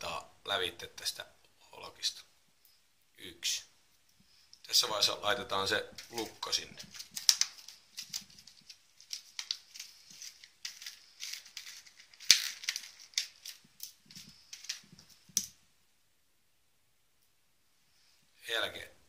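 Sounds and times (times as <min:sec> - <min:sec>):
plastic blister pack crinkling: 0:05.8 - 0:15.6.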